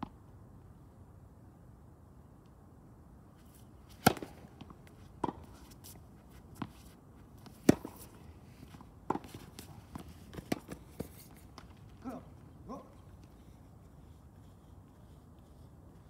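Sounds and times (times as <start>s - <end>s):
tennis ball struck by rackets: 3.9s - 8.2s, 9.0s - 11.7s
tennis ball bouncing on court: 3.9s - 11.7s.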